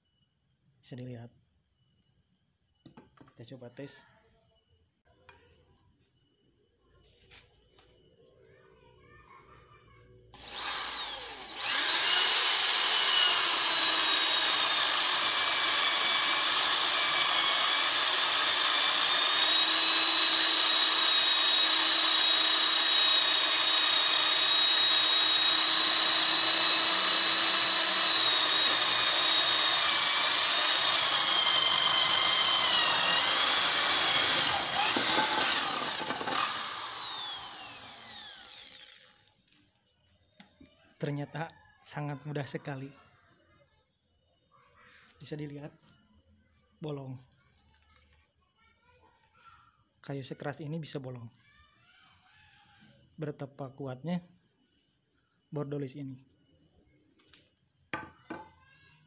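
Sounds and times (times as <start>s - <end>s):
drill motor whine: 10.4s - 39.6s.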